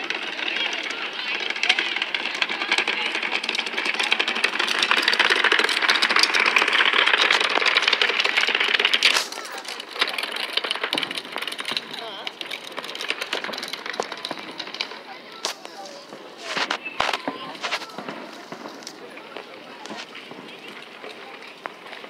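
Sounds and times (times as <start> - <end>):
fireworks crackling: 0.0 - 22.0.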